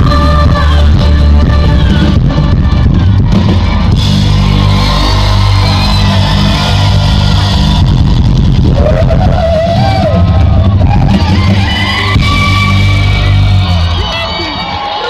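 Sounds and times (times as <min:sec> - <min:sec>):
heavy bass: 0:00.0 - 0:15.0
loud live concert music: 0:00.0 - 0:15.0.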